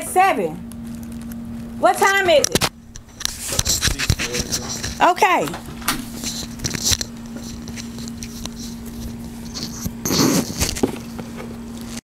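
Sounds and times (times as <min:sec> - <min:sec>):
steady low hum: 0:00.0 - 0:12.0
soft rustling and handling: 0:03.0 - 0:12.0.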